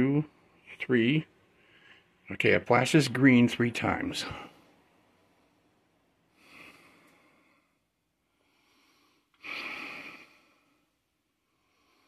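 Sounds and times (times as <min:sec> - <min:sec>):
man breathing out through nose: 0:08.4 - 0:10.9.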